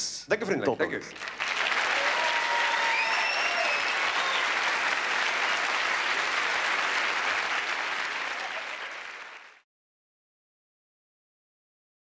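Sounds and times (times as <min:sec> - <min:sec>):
audience applauding: 0:01.1 - 0:09.6.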